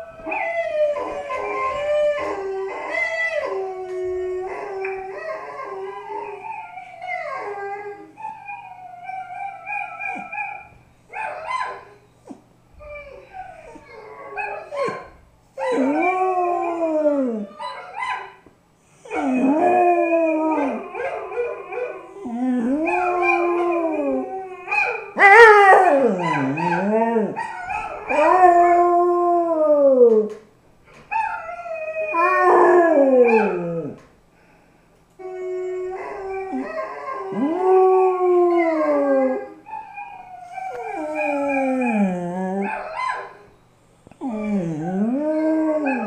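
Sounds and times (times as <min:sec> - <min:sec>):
dog howling: 0:12.8 - 0:18.3, 0:19.1 - 0:30.3, 0:31.1 - 0:34.0, 0:35.2 - 0:43.4, 0:44.2 - 0:46.0.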